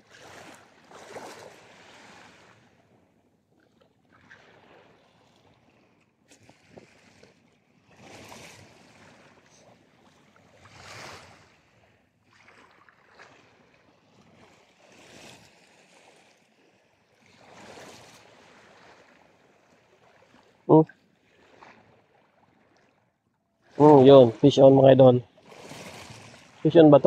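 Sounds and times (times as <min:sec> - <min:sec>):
waves washing against shore: 0:00.0 - 0:02.8, 0:07.8 - 0:22.0, 0:23.6 - 0:27.0.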